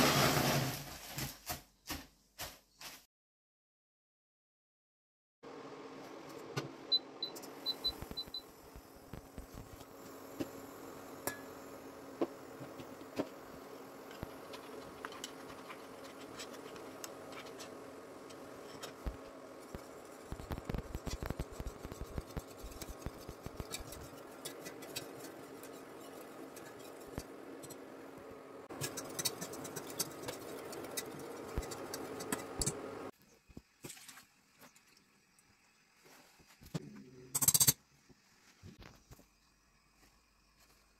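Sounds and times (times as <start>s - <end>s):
whisk scraping a steel saucepan: 14.1s - 27.9s, 28.7s - 32.8s.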